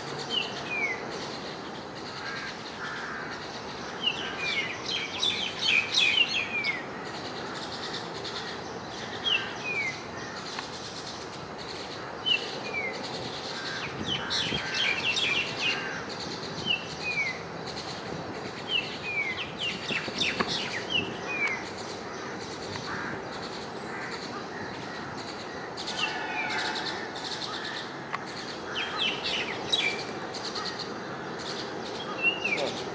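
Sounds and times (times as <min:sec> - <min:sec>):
mynas calling: 0:19.1 - 0:32.9.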